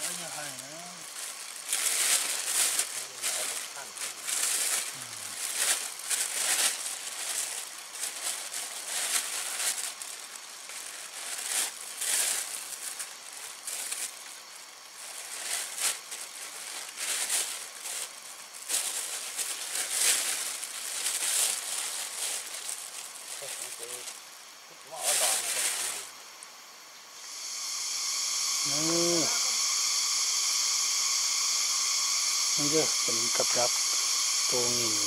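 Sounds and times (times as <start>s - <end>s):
plastic bag crinkling: 0.1s - 24.2s.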